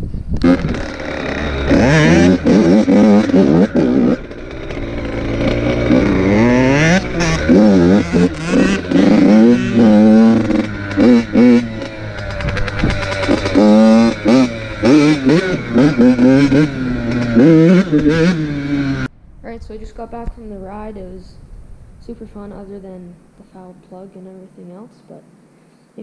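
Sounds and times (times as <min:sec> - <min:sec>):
dirt bike engine revving: 0:00.4 - 0:19.1.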